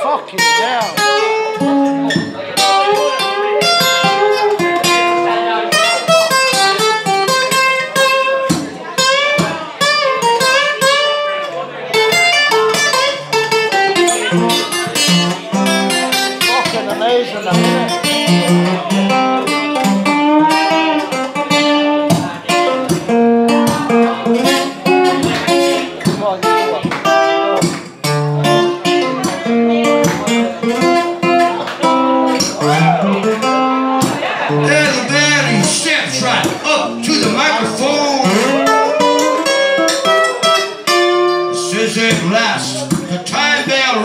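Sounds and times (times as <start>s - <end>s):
acoustic guitar strumming: 0.0s - 44.0s
person singing: 34.5s - 39.6s.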